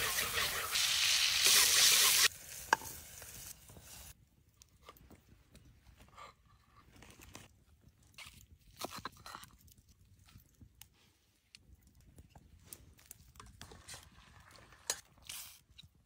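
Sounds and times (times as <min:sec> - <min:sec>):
meatballs sizzling in a frying pan: 0:00.0 - 0:04.2.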